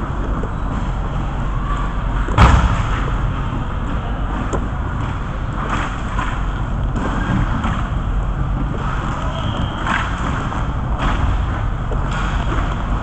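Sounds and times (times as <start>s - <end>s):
low rumble of rink noise: 0.0s - 13.0s
sharp loud crack: 2.4s - 3.3s.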